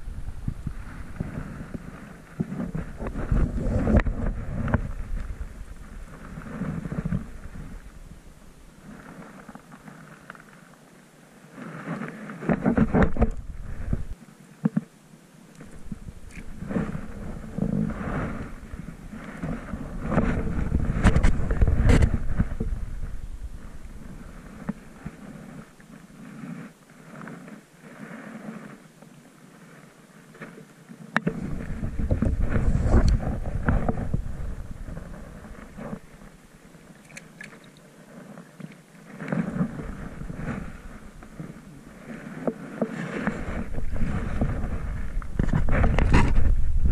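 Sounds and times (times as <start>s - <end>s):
wind buffeting microphone: 0.0s - 9.4s, 12.5s - 14.2s, 15.6s - 26.4s, 31.2s - 36.7s, 39.4s - 46.9s
water splashing and sloshing: 15.5s - 28.8s, 31.2s - 46.8s.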